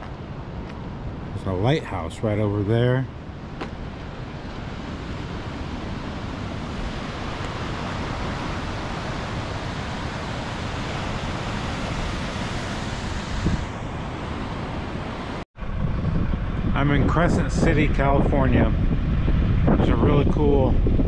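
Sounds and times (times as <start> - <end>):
wind buffeting microphone: 0.0 - 21.0
surf breaking on rocks: 2.8 - 14.7.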